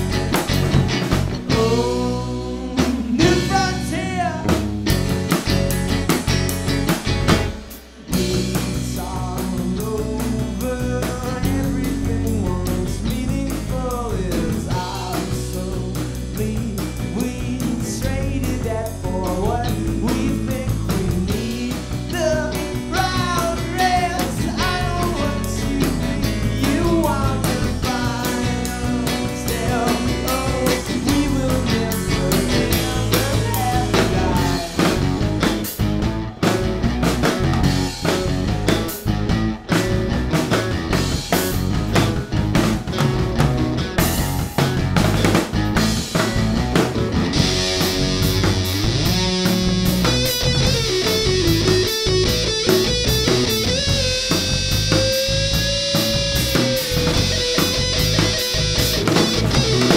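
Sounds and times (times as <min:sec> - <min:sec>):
bass guitar: 0:00.0 - 0:59.9
drum kit: 0:00.0 - 0:59.9
electric guitar: 0:00.0 - 0:59.9
man singing lead vocal: 0:01.4 - 0:04.7, 0:08.0 - 0:35.3.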